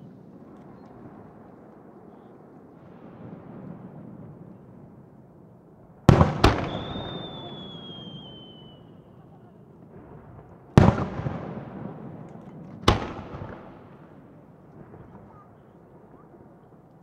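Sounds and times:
firework bangs with echo: 0:05.9 - 0:16.7
falling firework whistle: 0:06.3 - 0:09.2.

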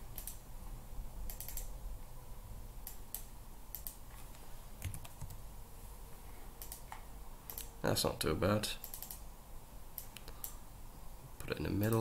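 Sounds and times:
faint low hum: 0:00.0 - 0:12.0
keyboard and mouse clicks: 0:00.1 - 0:00.4, 0:01.3 - 0:01.7, 0:02.8 - 0:04.0, 0:04.8 - 0:05.4, 0:06.6 - 0:07.7, 0:08.8 - 0:09.2.

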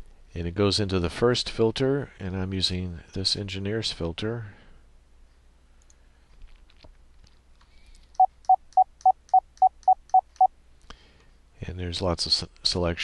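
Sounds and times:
faint clicks: 0:05.8 - 0:08.2
morse code beeps: 0:08.2 - 0:10.5.

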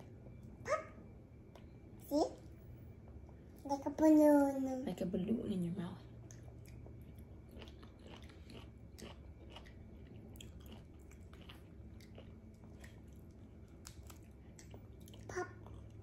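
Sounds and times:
chewing fruit pulp: 0:06.2 - 0:16.0.

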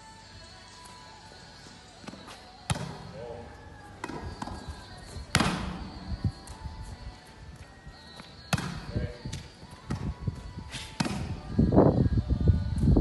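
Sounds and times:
background music: 0:00.0 - 0:13.0
volleyball hits on forearms: 0:02.1 - 0:03.1, 0:04.0 - 0:04.7, 0:05.3 - 0:06.6, 0:08.5 - 0:10.1, 0:11.0 - 0:11.4.

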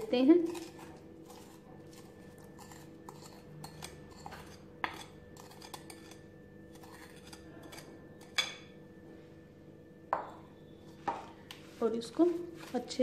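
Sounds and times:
metal spoon scraping ceramic bowl: 0:00.4 - 0:08.7.

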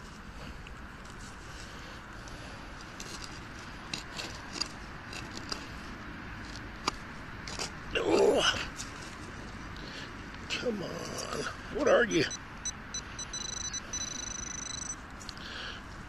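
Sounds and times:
small clicks and crackles: 0:00.6 - 0:07.8
hand rummaging through soil and leaves: 0:02.7 - 0:06.6.

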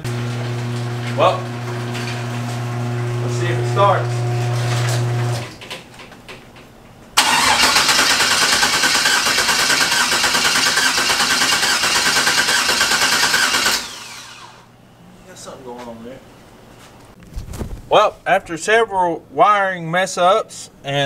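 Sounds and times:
starter cranking car engine: 0:07.2 - 0:14.6.

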